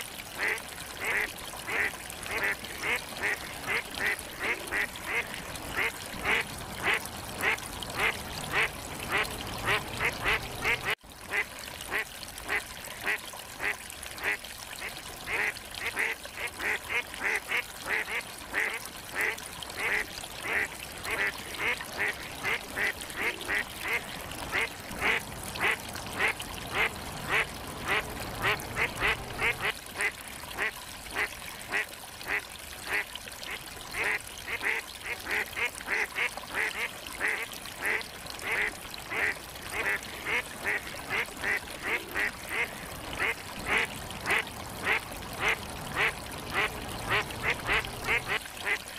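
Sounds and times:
ducks quacking: 15.3s - 30.7s.

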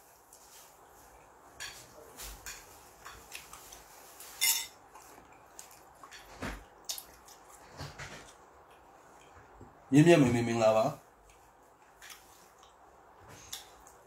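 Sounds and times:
tableware clicking: 4.4s - 4.8s
wet chewing mouth clicks: 12.0s - 12.8s.

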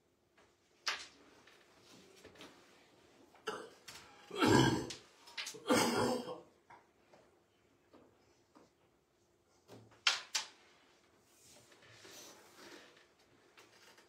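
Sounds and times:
person clearing throat: 3.4s - 6.5s.

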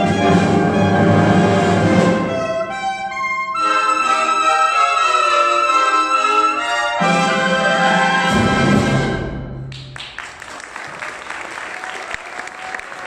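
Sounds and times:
symphonic band with saxophone: 0.0s - 9.6s
audience applause: 9.7s - 13.0s.

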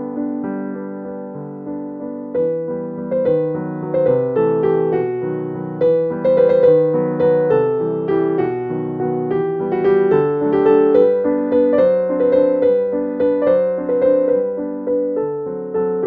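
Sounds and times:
gentle piano melody: 0.0s - 16.0s.

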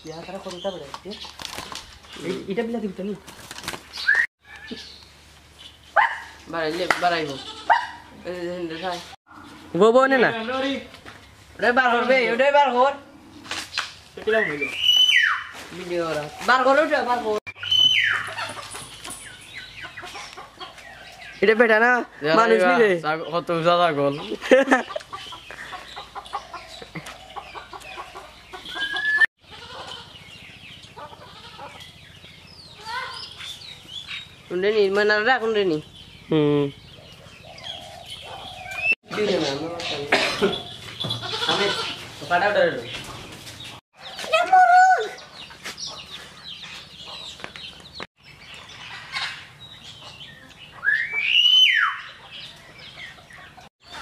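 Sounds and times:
small birds chirping: 0.0s - 54.0s
chickens clucking: 16.1s - 32.5s, 35.9s - 44.3s, 45.2s - 51.2s, 52.1s - 54.0s
loud rising chicken call: 50.8s - 52.1s.

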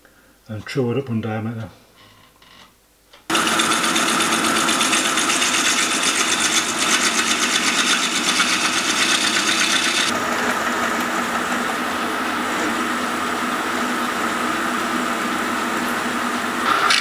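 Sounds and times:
drill bit drilling metal: 3.3s - 10.1s
metal lathe cutting: 3.3s - 17.0s.

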